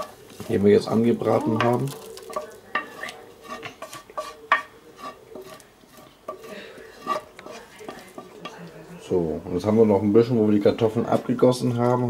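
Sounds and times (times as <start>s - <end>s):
utensil scraping pan and pot: 0.0s - 8.8s, 10.6s - 12.0s.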